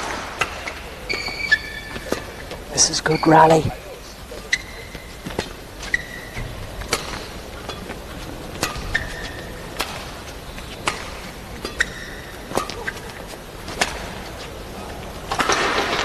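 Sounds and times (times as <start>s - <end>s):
racket hitting shuttlecock: 0.0s - 2.5s, 6.8s - 10.2s, 10.8s - 14.3s, 15.3s - 16.0s
shoes squeaking on court: 1.0s - 15.7s.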